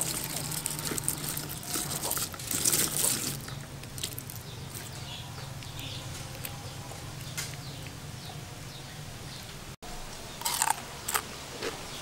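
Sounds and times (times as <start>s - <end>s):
crispy fried food crackling: 0.0s - 5.0s, 10.4s - 11.8s.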